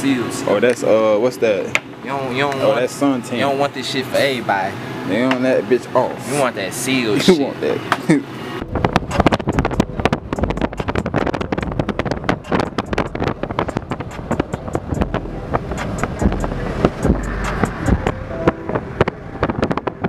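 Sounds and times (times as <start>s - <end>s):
road and wind rumble: 6.9s - 20.0s
wind buffeting microphone: 8.6s - 20.0s.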